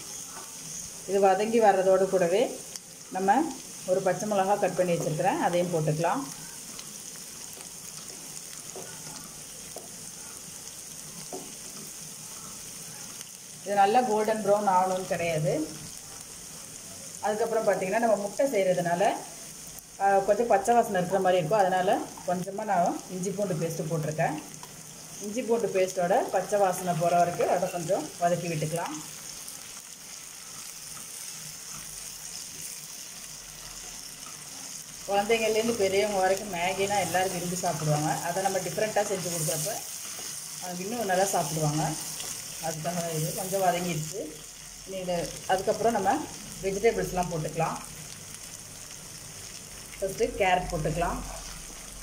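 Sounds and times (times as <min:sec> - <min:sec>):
onions sizzling in hot oil: 0:00.0 - 0:52.0
wooden spatula scraping: 0:36.8 - 0:43.6.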